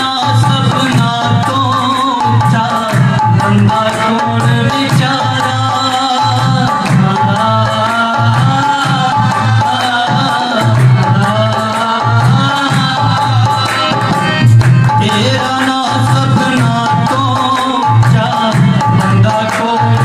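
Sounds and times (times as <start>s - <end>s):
dholak hand drum beating: 0.0s - 20.0s
harmonium chords: 0.0s - 20.0s.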